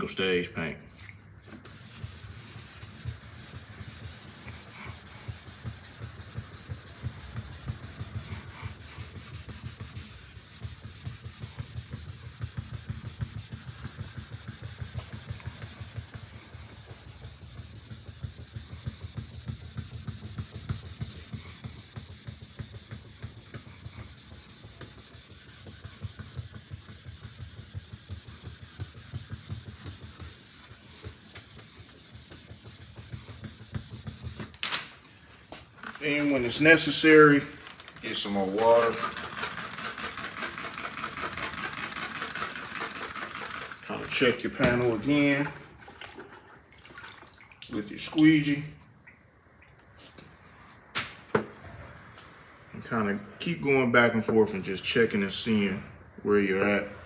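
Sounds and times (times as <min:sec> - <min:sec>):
sandpaper rubbing on paint: 0:01.4 - 0:34.5, 0:35.9 - 0:45.4.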